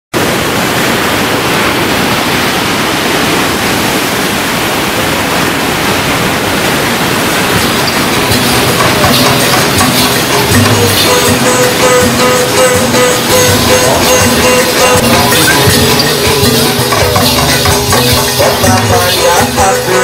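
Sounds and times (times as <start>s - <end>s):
ocean waves breaking on beach: 0.2s - 20.0s.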